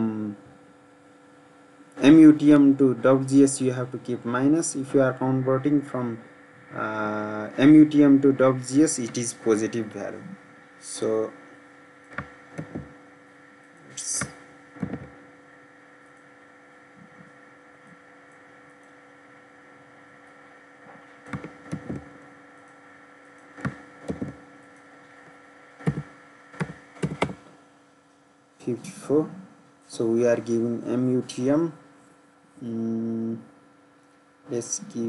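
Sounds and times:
electrical hum: 0:00.0 - 0:35.0
keyboard and mouse clicks: 0:12.1 - 0:12.9, 0:14.0 - 0:15.1, 0:21.3 - 0:22.1, 0:23.6 - 0:24.4, 0:25.8 - 0:27.4.

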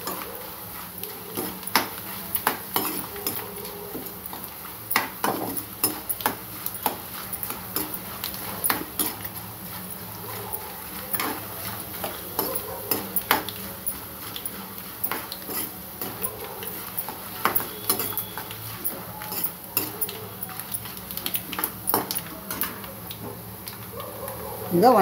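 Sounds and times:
hot oil sizzling: 0:00.0 - 0:25.0
metal ladle scraping a pan: 0:00.1 - 0:03.4, 0:05.2 - 0:10.2, 0:10.8 - 0:20.1.

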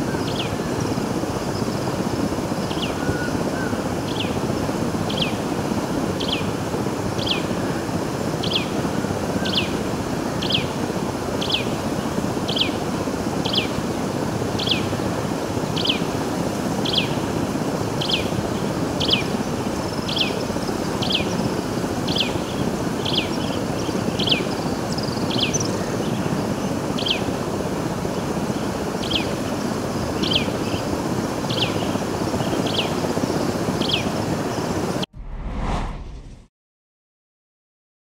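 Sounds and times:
bird calling: 0:02.7 - 0:04.3.

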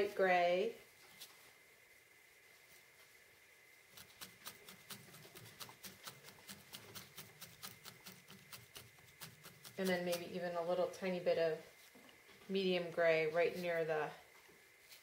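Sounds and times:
felting needle poking wool: 0:03.9 - 0:10.5.

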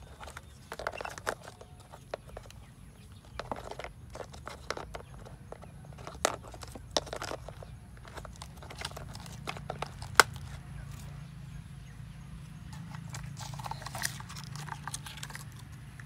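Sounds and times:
plastic toy clicks and knocks: 0:03.2 - 0:10.6, 0:12.8 - 0:16.0.

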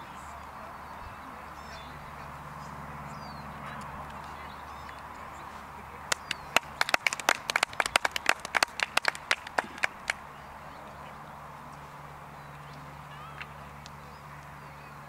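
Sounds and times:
people applauding: 0:05.8 - 0:10.4.

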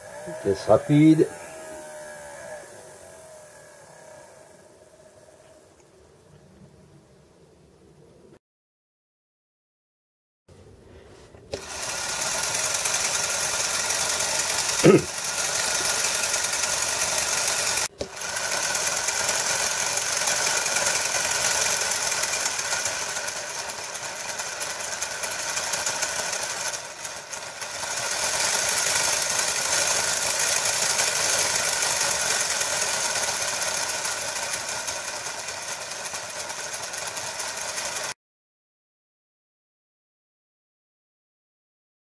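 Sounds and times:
model train motor whirring: 0:00.0 - 0:06.0, 0:11.5 - 0:38.2.

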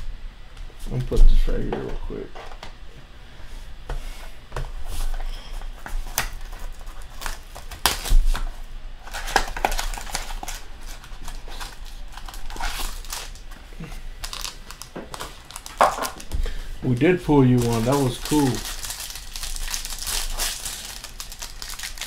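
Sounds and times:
foil wrapper crinkling and tearing: 0:06.0 - 0:22.0.

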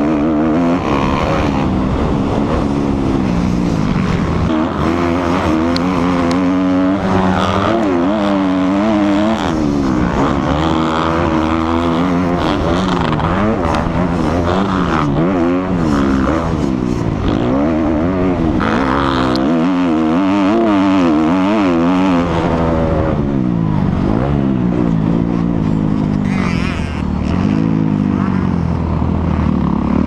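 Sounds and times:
wind rush: 0:00.0 - 0:18.8
motocross bike engine revving: 0:00.0 - 0:30.0.

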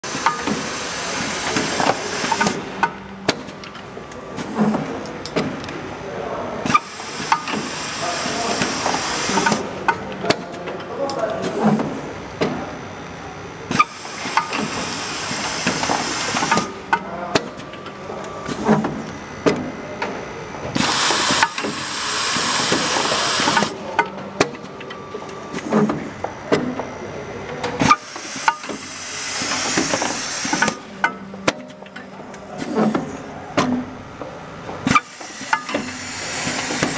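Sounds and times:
machine clicks and knocks: 0:15.6 - 0:21.8, 0:22.4 - 0:26.9, 0:27.5 - 0:36.9
compressed air hissing: 0:20.8 - 0:23.7.

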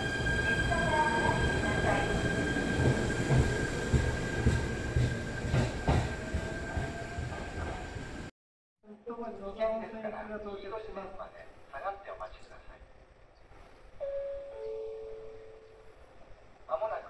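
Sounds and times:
train rumbling: 0:00.0 - 0:08.3.

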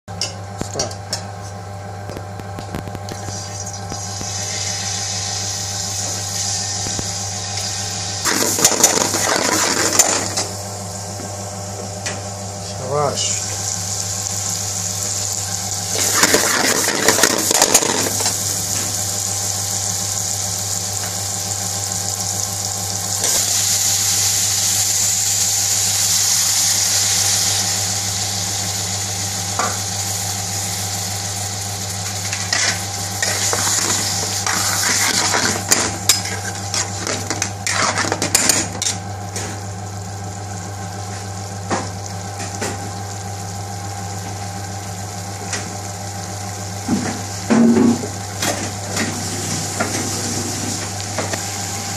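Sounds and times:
steady low hum: 0:00.2 - 0:51.9
curry sizzling in a pan: 0:03.2 - 0:10.8, 0:13.3 - 0:51.9
metal spoon scraping a pan: 0:32.4 - 0:39.0.

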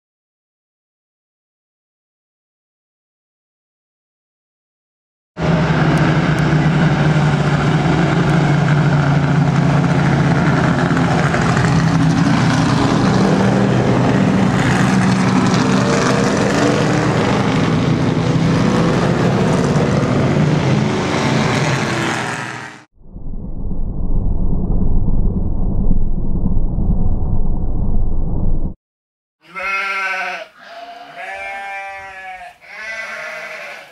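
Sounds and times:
race car engines passing: 0:05.4 - 0:22.9.

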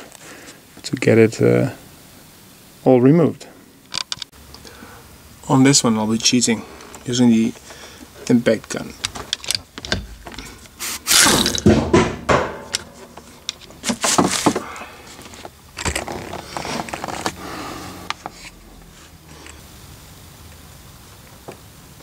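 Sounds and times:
knocks of parts handled: 0:11.4 - 0:14.7.

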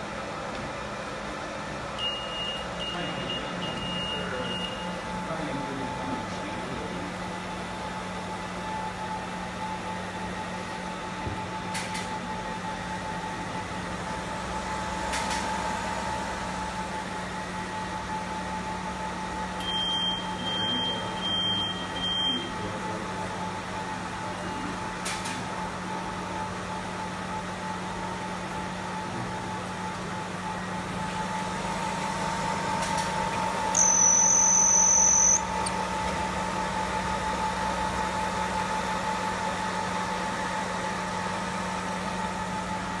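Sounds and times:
fan hum: 0:00.0 - 0:43.0
long high beep: 0:02.0 - 0:04.9, 0:33.7 - 0:35.5
short electronic beeps: 0:33.7 - 0:35.5.

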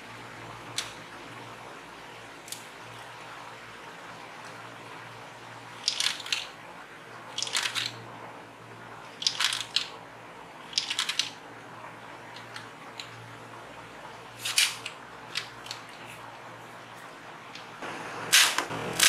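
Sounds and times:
plastic clicking and rattling: 0:05.8 - 0:06.5, 0:07.3 - 0:08.0, 0:09.2 - 0:10.0, 0:10.7 - 0:11.4.

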